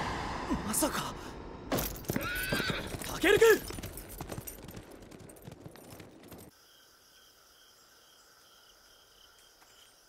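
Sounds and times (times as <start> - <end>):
horse hoofbeats: 2.0 - 6.6
crickets chirping: 3.0 - 10.0.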